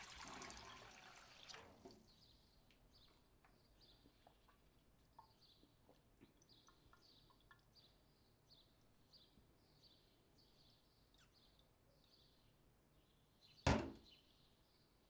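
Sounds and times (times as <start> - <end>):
faint high chirping: 6.3 - 12.5.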